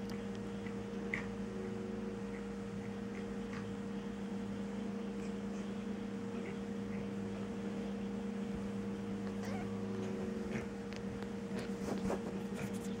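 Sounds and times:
steady low hum: 0.0s - 13.0s
faint rustles: 9.3s - 13.0s.

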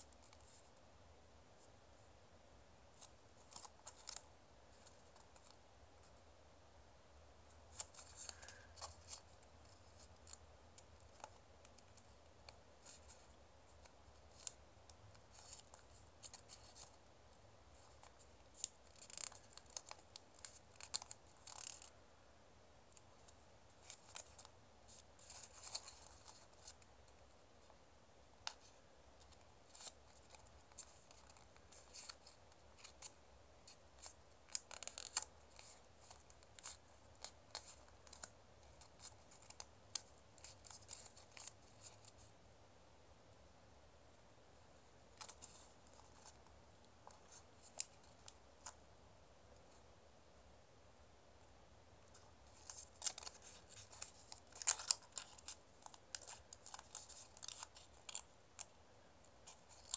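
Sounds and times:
paper being folded and creased: 3.0s - 5.6s, 7.6s - 17.0s, 17.8s - 22.0s, 22.9s - 27.8s, 28.4s - 42.3s, 45.1s - 48.8s, 52.1s - 58.7s, 59.4s - 59.9s.

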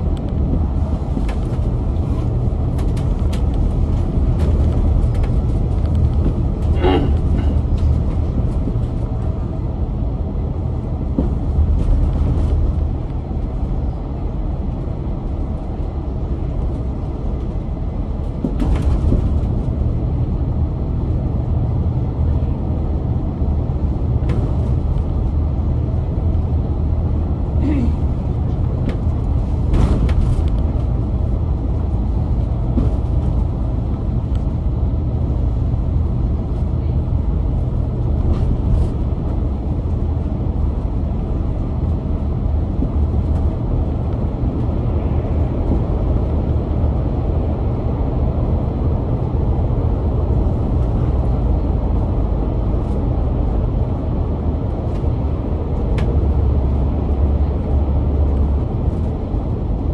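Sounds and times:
light rattles and clicks: 0.0s - 9.5s
bus engine and road rumble: 0.0s - 59.9s.

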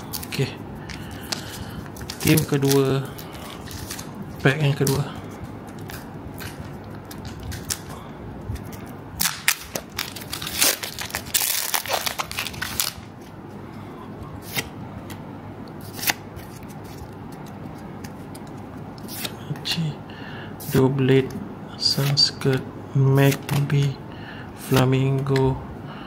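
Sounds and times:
foil wrapper tearing and crinkling: 9.2s - 13.1s.

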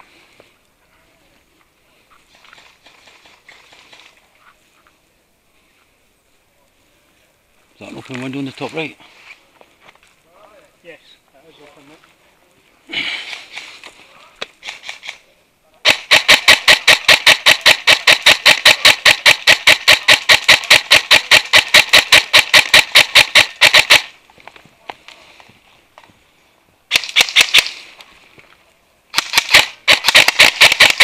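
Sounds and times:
airsoft rifle rapid shots: 14.6s - 15.2s, 15.8s - 24.2s, 26.9s - 27.8s, 29.1s - 31.0s.

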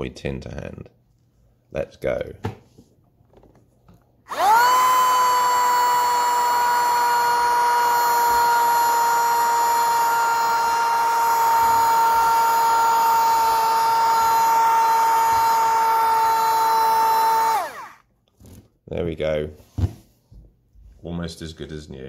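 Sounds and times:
miniature vacuum motor whining: 4.3s - 18.0s.

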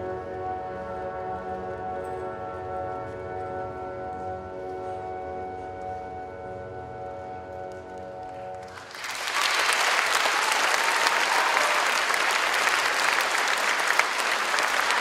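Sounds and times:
audience applauding: 8.6s - 15.0s.

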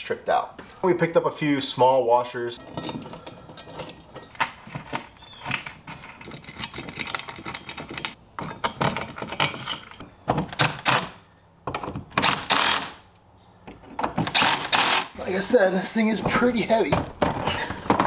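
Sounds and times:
metal bolts clicking and rattling: 2.6s - 11.0s
cordless drill driving bolts: 12.2s - 13.0s, 14.1s - 15.2s.

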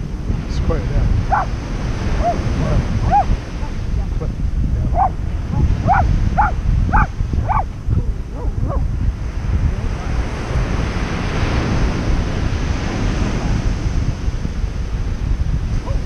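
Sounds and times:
ocean wave breaking: 0.0s - 16.0s
wind rumble on microphone: 0.0s - 16.0s
high animal calls: 1.3s - 1.5s, 2.2s - 7.7s.

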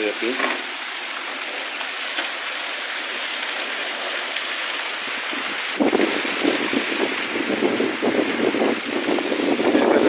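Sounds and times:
heavy rain pouring: 0.0s - 10.0s
wind buffeting microphone: 5.2s - 10.0s.

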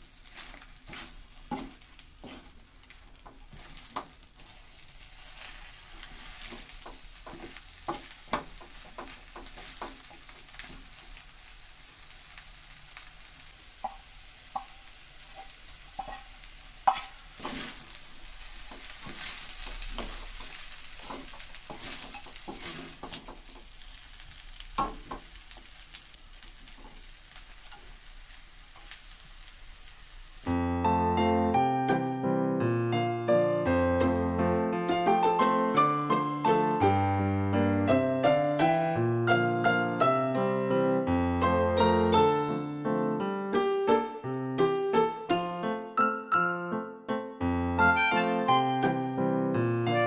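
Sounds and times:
spatula scraping and knocking wok: 0.0s - 11.6s, 12.7s - 30.3s
noodles sizzling in a wok: 0.0s - 30.5s, 37.9s - 40.4s.

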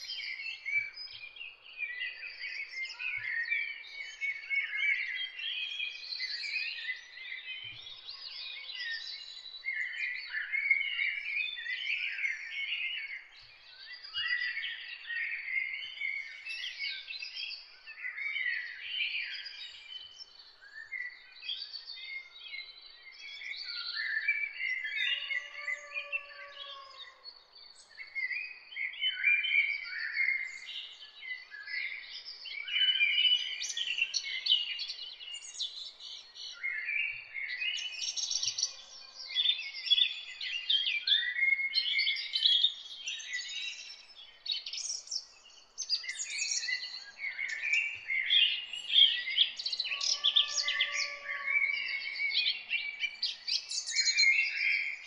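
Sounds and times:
birds chirping and twittering: 0.0s - 55.0s
drawn-out bird whistle: 49.9s - 52.2s.

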